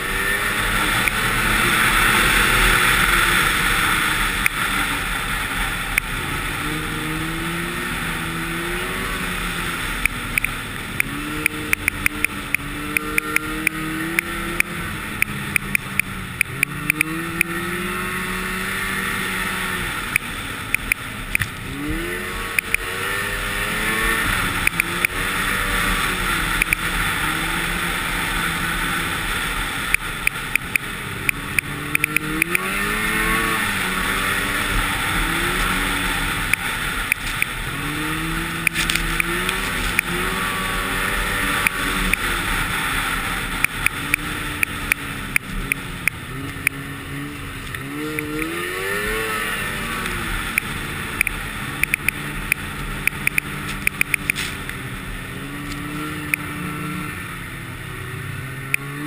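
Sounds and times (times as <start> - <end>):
snowmobile engine revving: 0.0 - 59.0
sharp clicks: 1.0 - 1.2, 4.4 - 4.6, 5.9 - 6.1, 10.0 - 17.6, 20.1 - 21.6, 22.5 - 22.9, 24.6 - 25.2, 26.6 - 26.9, 29.9 - 32.7, 36.4 - 37.6, 38.6 - 40.2, 43.6 - 46.8, 47.7 - 48.6, 50.0 - 54.8, 55.6 - 56.5.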